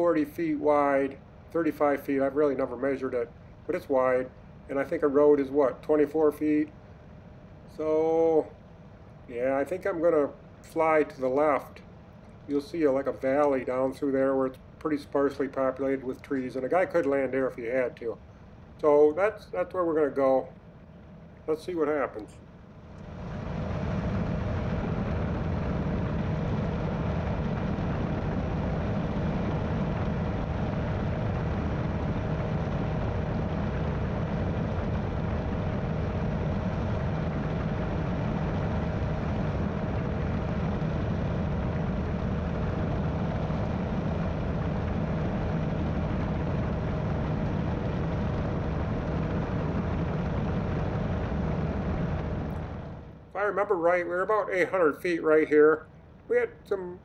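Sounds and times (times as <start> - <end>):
engine and propeller drone: 0.0 - 57.0
wind rushing past: 22.9 - 53.2.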